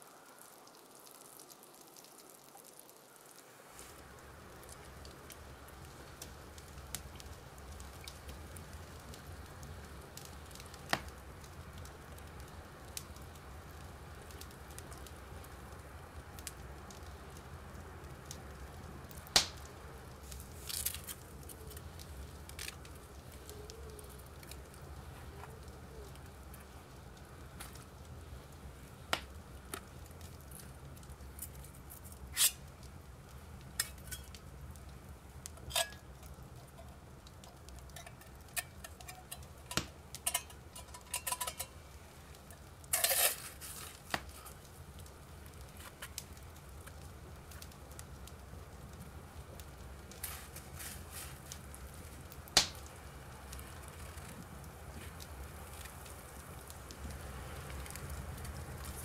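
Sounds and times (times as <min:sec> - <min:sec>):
metal clinking on a metal pot: 0:35.6 - 0:36.0, 0:37.9 - 0:41.8.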